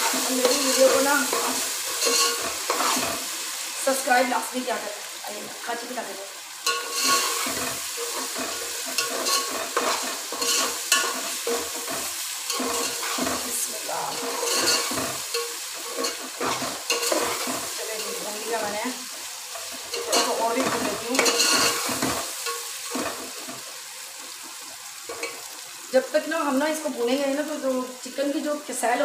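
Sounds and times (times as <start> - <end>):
metal spoon scraping pot: 0.0 - 3.2, 6.6 - 18.2, 19.6 - 23.5
chicken sizzling in oil: 0.0 - 29.0
spoon clinking on metal: 0.4 - 2.5, 6.6 - 11.8.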